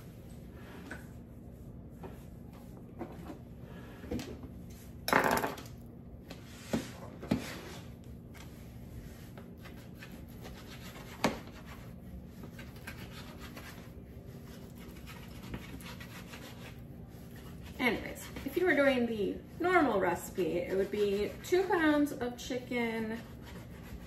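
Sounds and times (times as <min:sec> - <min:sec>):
knife scraping through bacon: 0:09.6 - 0:18.8, 0:23.0 - 0:24.0.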